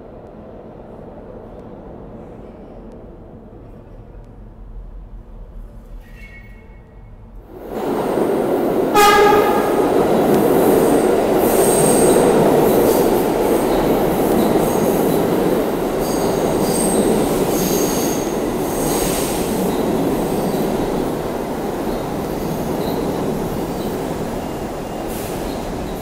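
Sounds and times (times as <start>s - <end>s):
wheels rumbling on rail: 7.3s - 26.0s
train horn blast: 8.9s - 10.1s.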